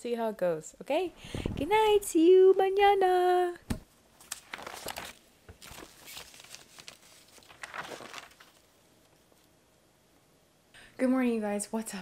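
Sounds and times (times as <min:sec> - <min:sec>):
paper rustling: 0:04.2 - 0:09.5.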